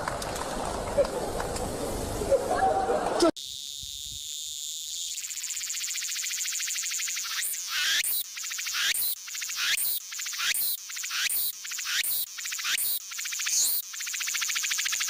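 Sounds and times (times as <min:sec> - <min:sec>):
insects buzzing: 0:03.4 - 0:15.0.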